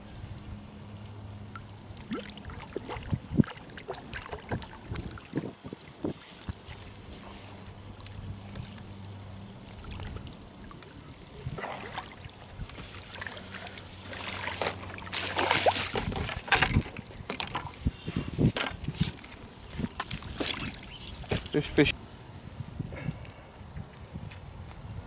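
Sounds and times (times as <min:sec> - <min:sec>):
steady low hum: 0:00.0 - 0:25.0
fish splashing in water: 0:01.6 - 0:17.4.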